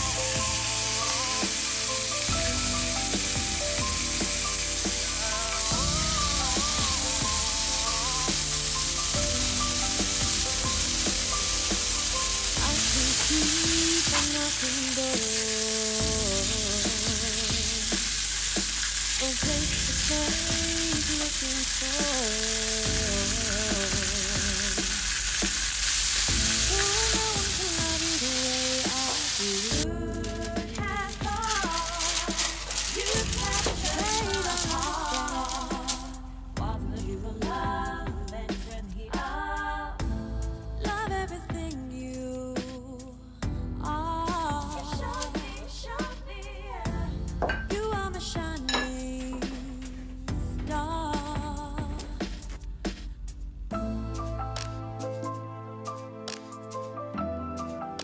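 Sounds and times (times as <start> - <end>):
chicken sizzling in a frying pan: 0.0 - 29.8, 31.1 - 36.1
background music: 0.0 - 58.0.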